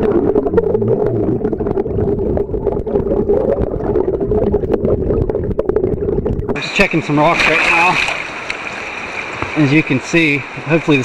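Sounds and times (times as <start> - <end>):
bubbles clicking and ticking: 0.0 - 6.6
muffled underwater stream rumble: 0.0 - 9.6.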